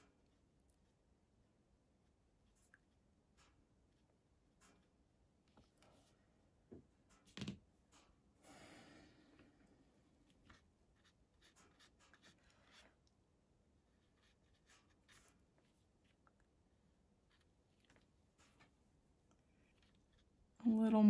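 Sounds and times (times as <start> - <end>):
scratchy rustle: 14.0 - 16.2.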